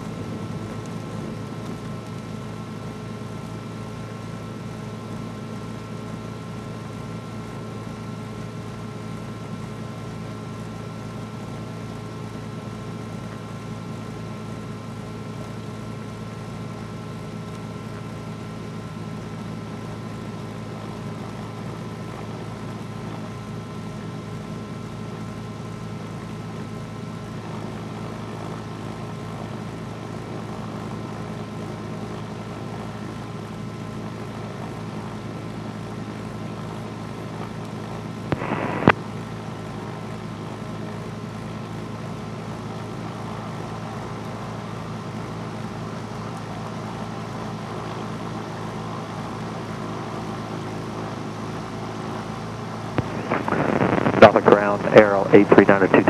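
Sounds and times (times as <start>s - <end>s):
twin piston engines droning: 53.0s - 56.0s.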